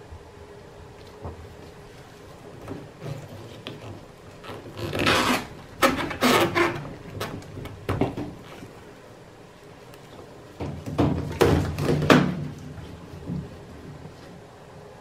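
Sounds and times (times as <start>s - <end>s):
plastic scraping on plastic: 2.6s - 8.8s.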